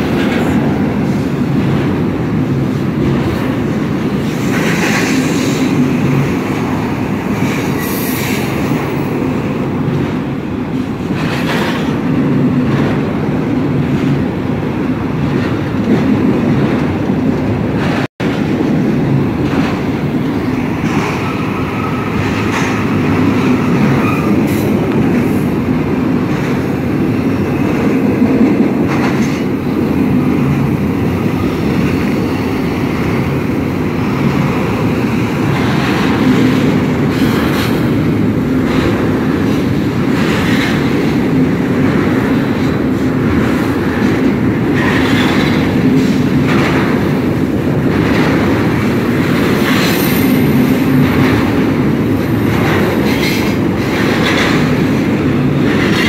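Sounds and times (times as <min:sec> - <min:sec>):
train clanks: 0:00.0 - 0:56.0
train wheels rumbling on rail: 0:00.0 - 0:56.0.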